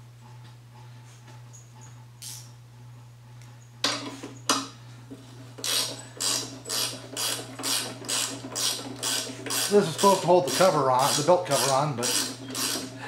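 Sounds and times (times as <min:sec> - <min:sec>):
ratchet wrench clicking: 0:05.6 - 0:09.8.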